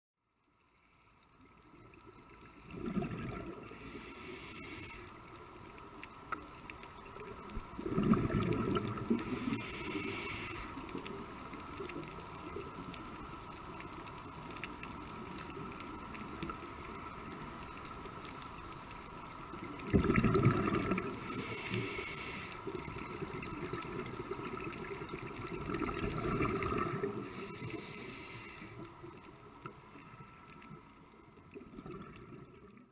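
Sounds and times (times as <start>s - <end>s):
exhaled bubbles gushing: 2.4s - 3.9s, 7.2s - 9.6s, 19.6s - 21.4s, 22.7s - 27.4s, 31.4s - 32.9s
regulator inhale hiss: 3.6s - 5.8s, 9.1s - 11.1s, 20.9s - 22.9s, 26.0s - 29.0s.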